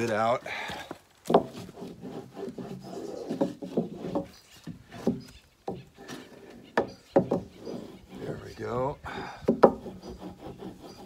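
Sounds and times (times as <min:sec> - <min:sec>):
wood block scraping: 0:00.0 - 0:11.0
wood knocking against wood: 0:01.2 - 0:01.7, 0:03.2 - 0:07.6, 0:09.4 - 0:09.9.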